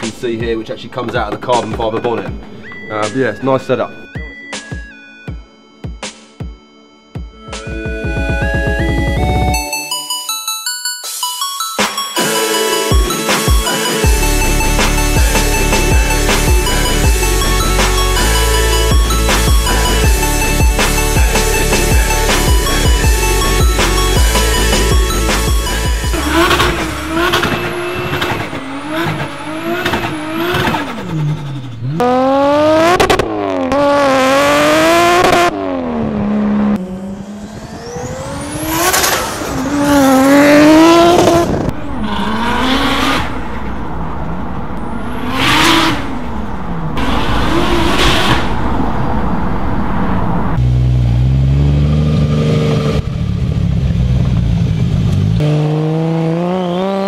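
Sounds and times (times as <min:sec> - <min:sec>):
car driving by: 0:14.1 - 0:57.0
car engine revving hard: 0:14.1 - 0:57.0.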